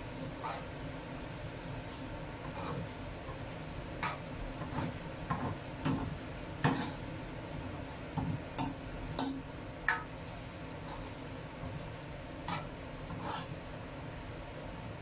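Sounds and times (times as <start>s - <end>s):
metal spatula scraping a wok: 0.2s - 0.8s, 1.9s - 3.4s, 4.0s - 7.1s, 10.8s - 11.2s, 12.4s - 13.6s.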